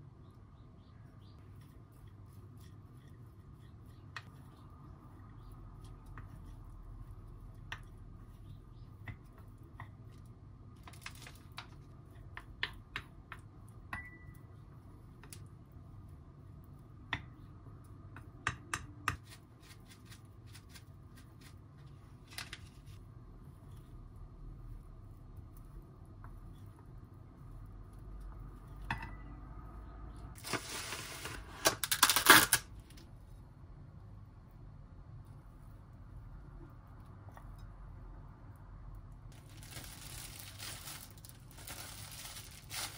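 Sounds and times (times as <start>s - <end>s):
spoon stirring rice: 1.2s - 14.2s
cling film pulled off roll: 30.4s - 32.6s
cling film crinkling: 30.4s - 32.7s, 39.3s - 42.9s.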